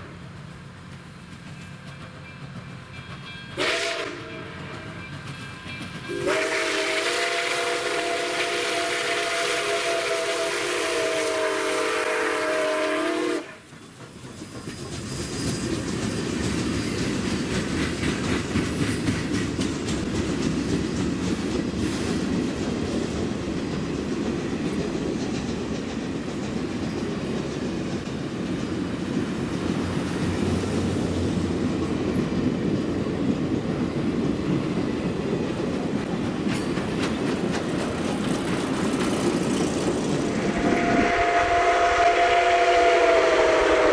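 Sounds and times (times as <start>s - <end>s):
train wheels clattering on rails: 0.0s - 11.1s, 11.8s - 43.9s
steam locomotive whistle: 3.5s - 5.2s, 5.9s - 13.7s, 40.3s - 43.9s.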